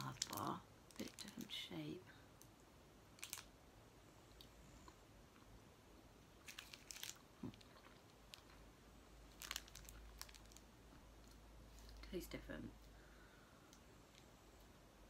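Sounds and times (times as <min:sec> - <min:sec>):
foil wrapper crackling: 0:00.0 - 0:01.7, 0:03.2 - 0:03.5, 0:06.4 - 0:08.5, 0:09.3 - 0:10.7
faint chewing: 0:06.4 - 0:08.7.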